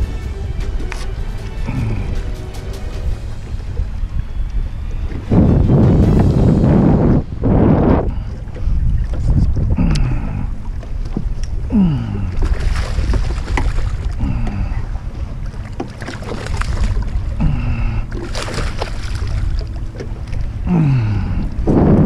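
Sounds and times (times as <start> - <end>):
low falling tone: 0.0 - 8.5
wind rumbling on microphone: 0.0 - 22.0
fish splashing in water: 11.8 - 14.7, 15.8 - 20.1.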